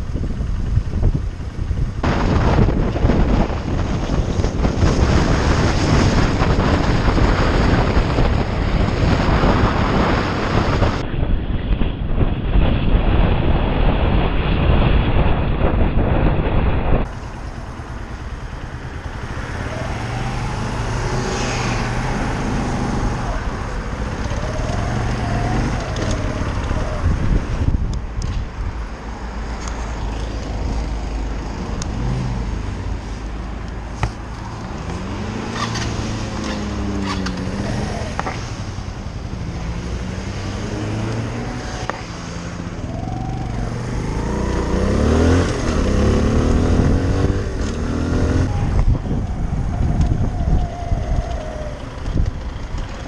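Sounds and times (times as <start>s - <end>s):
wind and road noise: 0.0s - 53.0s
motorcycle engine revving: 15.4s - 27.9s, 34.8s - 53.0s.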